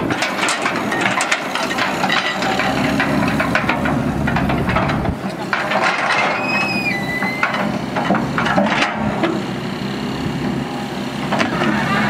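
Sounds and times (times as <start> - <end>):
excavator diesel engine: 0.0 - 12.0
high squeal: 6.3 - 7.5.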